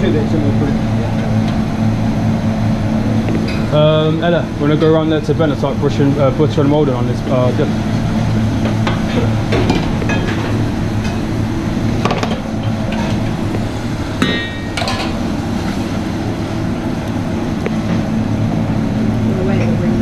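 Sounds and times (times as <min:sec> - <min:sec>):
ventilation hum: 0:00.0 - 0:20.0
pans and utensils clinking: 0:14.2 - 0:15.8.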